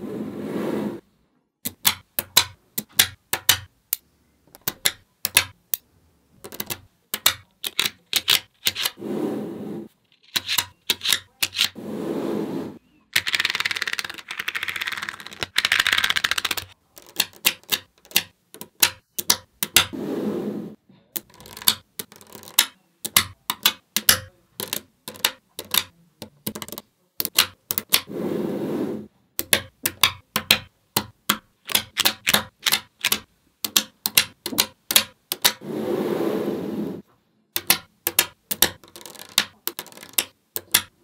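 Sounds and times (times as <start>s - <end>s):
magnetic balls snapping together: 1.6s - 9.0s, 10.2s - 11.8s, 13.2s - 20.0s, 21.2s - 28.1s, 29.4s - 35.6s, 37.5s - 41.0s.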